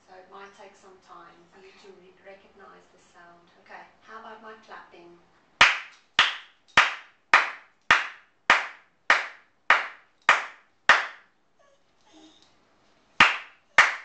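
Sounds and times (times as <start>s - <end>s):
hands clapping slowly: 5.6s - 11.3s, 13.2s - 14.0s.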